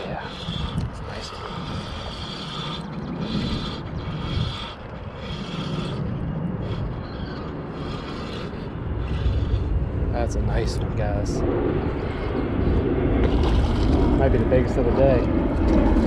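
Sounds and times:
fishing reel cranking: 0:00.0 - 0:09.6
low rumble: 0:00.0 - 0:16.0.

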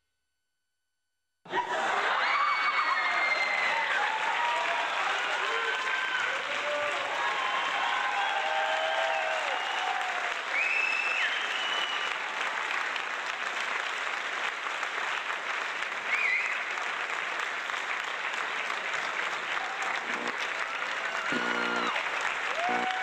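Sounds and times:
crowd applauding: 0:01.5 - 0:23.0
high whistles: 0:10.5 - 0:12.2, 0:16.1 - 0:16.6.

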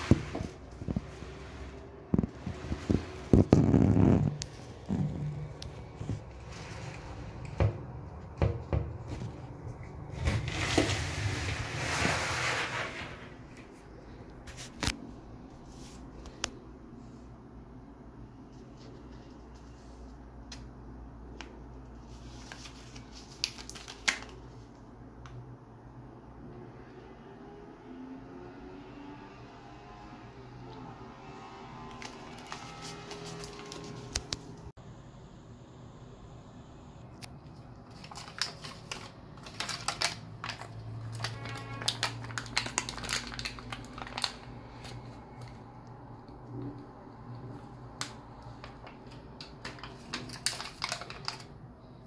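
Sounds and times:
plastic blister pack crinkling: 0:02.1 - 0:07.5, 0:22.1 - 0:24.6, 0:31.8 - 0:34.6, 0:37.4 - 0:45.6, 0:47.5 - 0:51.6.

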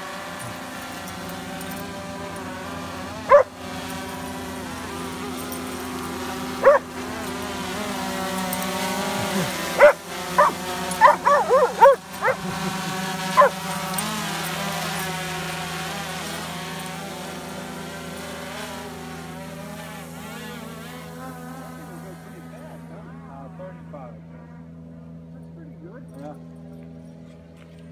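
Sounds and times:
drone propeller hum: 0:00.0 - 0:27.9
dog barking: 0:03.3 - 0:03.5, 0:06.6 - 0:06.9, 0:09.8 - 0:12.5, 0:13.4 - 0:13.6.

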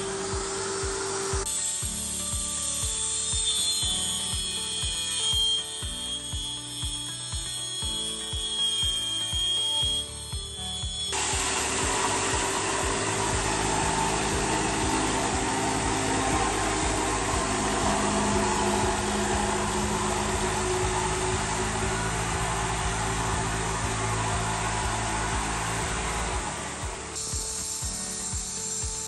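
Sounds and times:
electric jigsaw cutting chipboard: 0:00.0 - 0:27.3
vacuum hose suction: 0:10.9 - 0:28.8.

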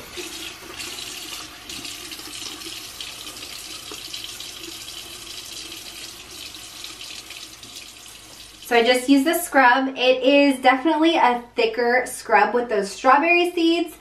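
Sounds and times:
faucet running into sink: 0:00.0 - 0:08.9.

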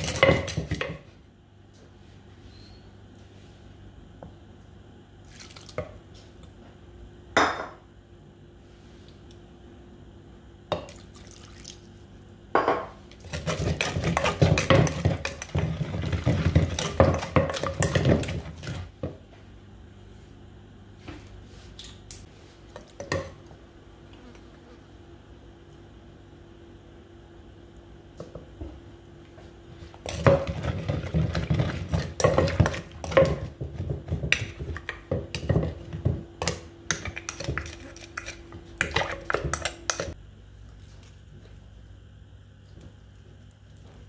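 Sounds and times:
wet mixing noises: 0:00.0 - 0:01.2, 0:05.1 - 0:06.6, 0:10.7 - 0:12.4, 0:13.0 - 0:19.2, 0:29.4 - 0:44.0.

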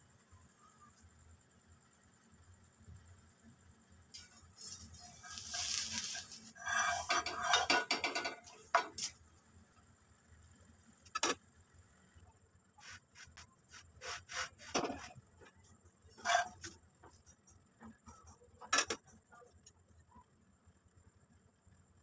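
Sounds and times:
scrapes on iron pan: 0:04.2 - 0:09.1, 0:12.8 - 0:15.2, 0:16.1 - 0:16.8.

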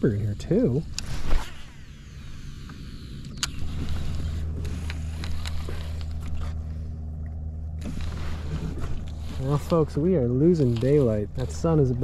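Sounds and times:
electric motor humming: 0:00.0 - 0:12.0.

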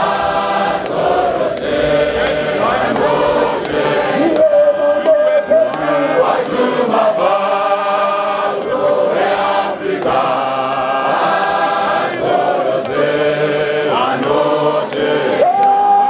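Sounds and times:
choir singing a hymn: 0:00.0 - 0:15.5.

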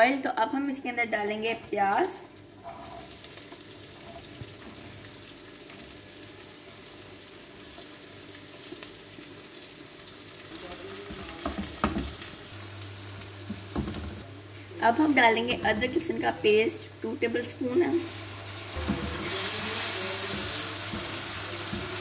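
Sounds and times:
onions sizzling in oil: 0:02.3 - 0:22.0
spatula scraping and stirring: 0:18.0 - 0:22.0.

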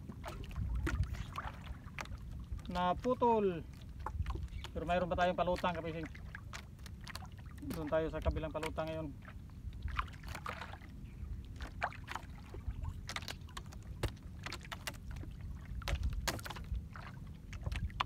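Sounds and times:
steady low rumble: 0:00.0 - 0:02.7
line and gear knocking on hull: 0:13.0 - 0:16.8.

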